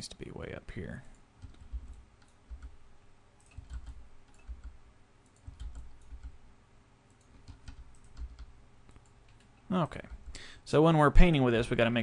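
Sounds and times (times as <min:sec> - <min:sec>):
computer keyboard and mouse clicks: 0:01.1 - 0:02.8, 0:03.4 - 0:06.4, 0:07.1 - 0:10.3.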